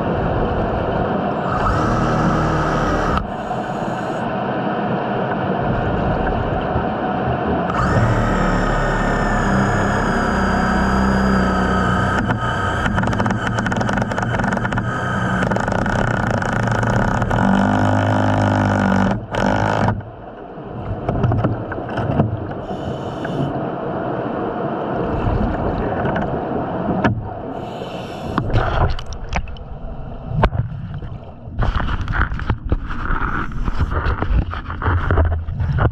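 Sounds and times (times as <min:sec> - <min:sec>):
underwater mechanical hum: 0:00.0 - 0:35.9
clicks and scrapes: 0:07.7 - 0:20.1, 0:30.4 - 0:35.9.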